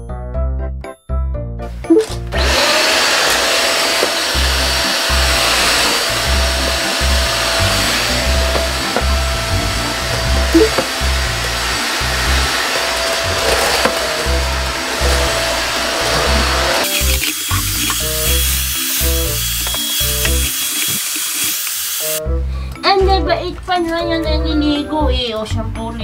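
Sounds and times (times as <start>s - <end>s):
vacuum cleaner running: 2.3s - 22.2s
background music with steady beat: 22.0s - 26.0s.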